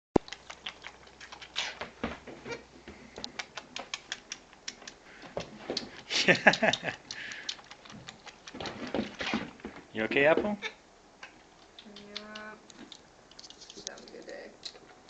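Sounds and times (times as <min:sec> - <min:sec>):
goat sucking on bottle: 0:00.2 - 0:02.6, 0:03.2 - 0:09.6, 0:11.6 - 0:14.8.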